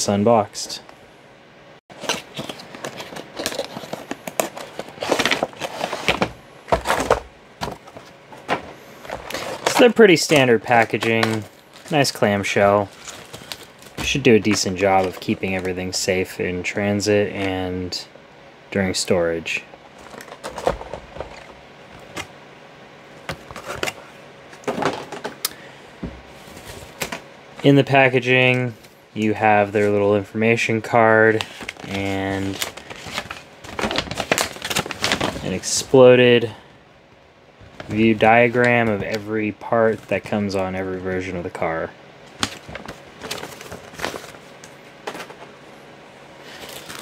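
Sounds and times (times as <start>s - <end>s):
computer fans humming: 0.0s - 47.0s
plastic packaging crackling: 2.0s - 8.1s, 9.0s - 15.8s, 31.3s - 35.8s, 46.5s - 47.0s.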